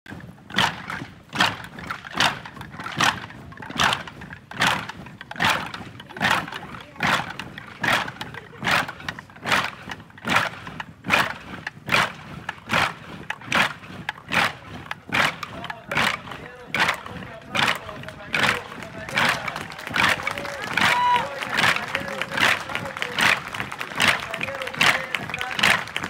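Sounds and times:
marching feet in unison: 0:00.1 - 0:26.0.

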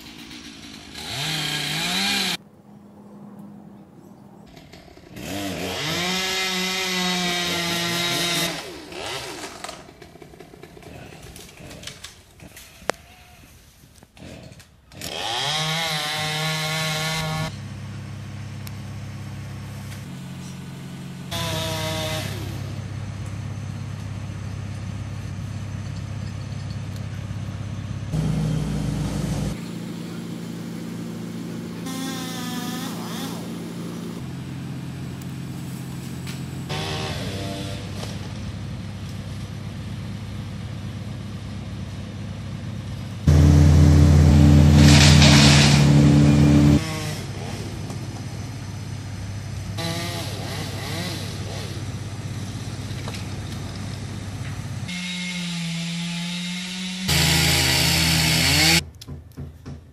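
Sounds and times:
chainsaw idling and revving: 0:00.0 - 0:02.4, 0:04.6 - 0:12.6, 0:14.2 - 0:18.0, 0:19.4 - 0:23.2, 0:28.1 - 0:38.9, 0:43.2 - 0:48.0, 0:49.7 - 0:53.2, 0:53.8 - 0:58.8.

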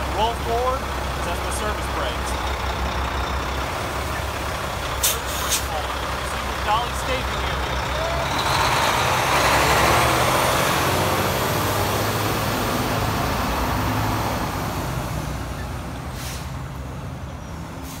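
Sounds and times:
truck diesel engine: 0:00.0 - 0:18.0
short air hiss: 0:05.0 - 0:05.7, 0:16.2 - 0:16.6.

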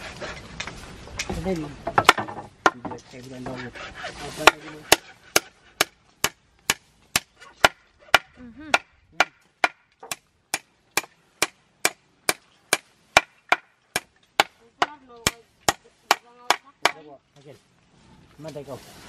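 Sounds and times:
tool striking wood: 0:01.8 - 0:03.6, 0:04.4 - 0:17.0.

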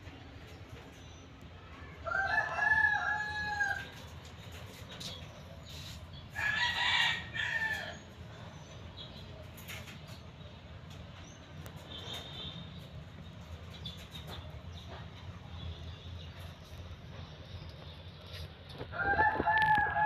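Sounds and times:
rooster crowing: 0:02.0 - 0:04.0, 0:06.4 - 0:08.0, 0:18.9 - 0:20.0.

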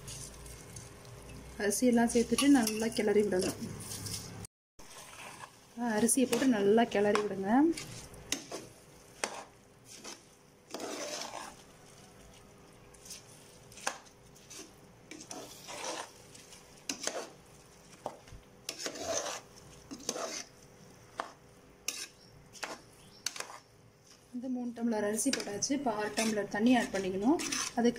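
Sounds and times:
spoon scraping a metal pot: 0:04.9 - 0:11.7, 0:13.8 - 0:17.4, 0:18.7 - 0:20.5, 0:21.8 - 0:23.7, 0:25.2 - 0:27.9.

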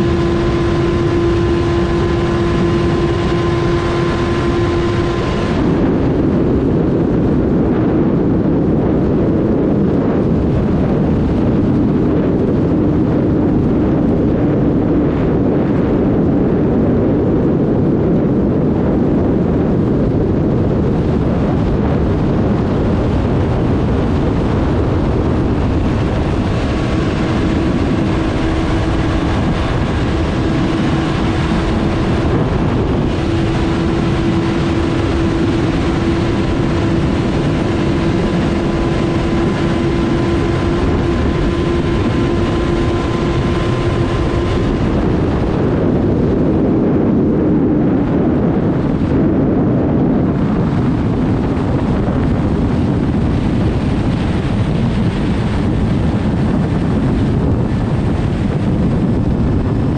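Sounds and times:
motorcycle engine running hard: 0:00.0 - 0:59.9
wind rush: 0:00.0 - 0:59.9.

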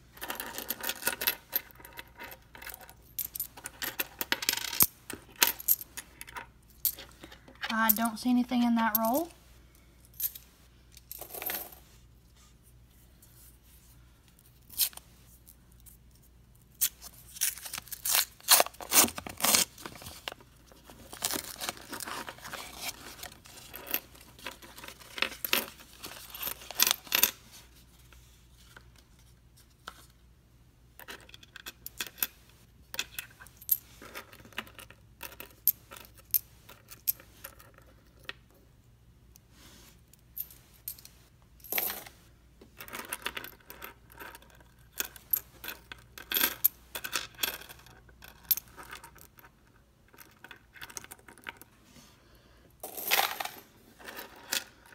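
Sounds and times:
coins clicking: 0:00.2 - 0:07.1, 0:52.8 - 0:54.6
coins clinking on wooden table: 0:00.2 - 0:09.3, 0:11.0 - 0:11.8, 0:23.6 - 0:27.4, 0:31.0 - 0:38.3, 0:40.4 - 0:42.1, 0:52.8 - 0:54.9.

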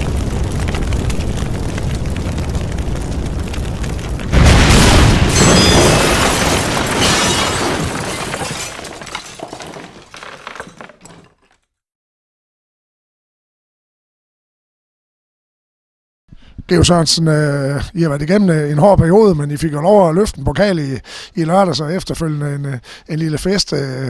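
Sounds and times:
dense rumbling build: 0:00.0 - 0:05.3
booming impact: 0:00.0 - 0:10.2
scattered crackles: 0:00.0 - 0:11.5.

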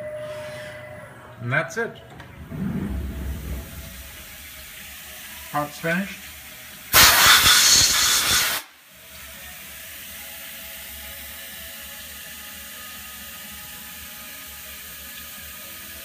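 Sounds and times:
milling machine hum with tones: 0:02.2 - 0:06.9
compressed air blow gun blast: 0:06.9 - 0:08.8.

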